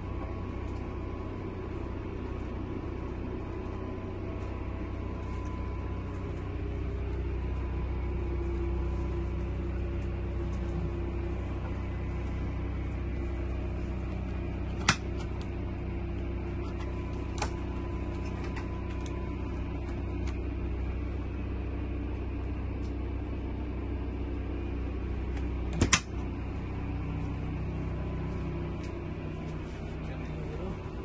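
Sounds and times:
steady low hum: 0.0s - 31.0s
refrigerator door clicks: 25.7s - 26.1s.

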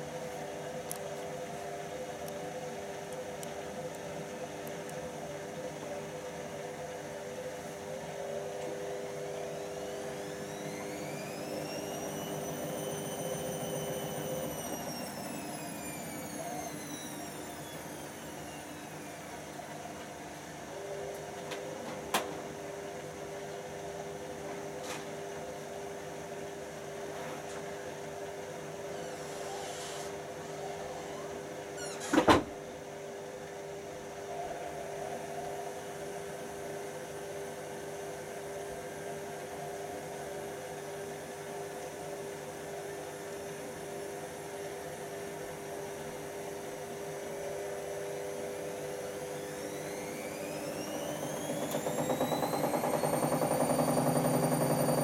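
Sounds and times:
washing machine motor hum: 0.0s - 27.1s, 34.9s - 55.0s
motor whine rising in pitch: 7.7s - 20.0s, 47.5s - 55.0s.

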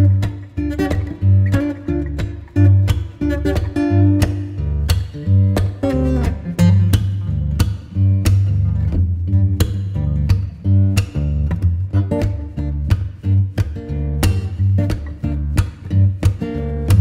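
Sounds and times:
bass line: 0.0s - 17.0s
steady beat: 0.0s - 17.0s
strummed acoustic guitar: 0.0s - 17.0s.

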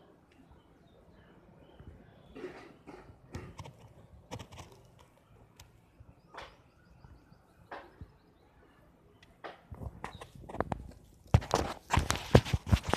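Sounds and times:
faint outdoor background: 0.0s - 12.9s
soft rustles and taps: 9.5s - 12.9s.

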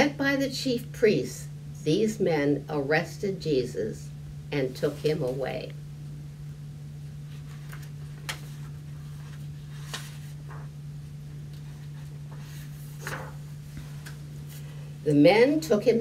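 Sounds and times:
steady low hum: 0.0s - 16.0s
book pages rustling: 7.2s - 10.8s, 11.5s - 14.8s.

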